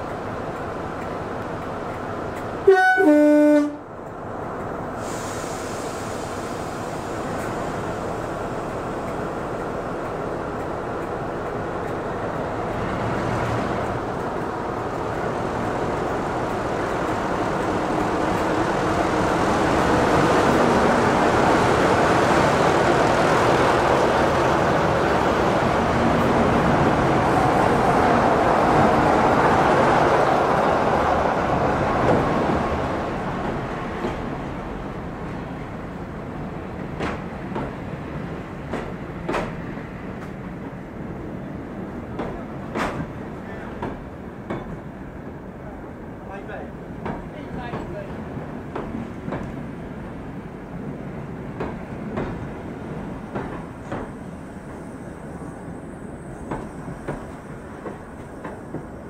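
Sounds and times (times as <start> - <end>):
diesel locomotive engine running: 0.0 - 31.8
two-tone locomotive horn: 2.6 - 3.9.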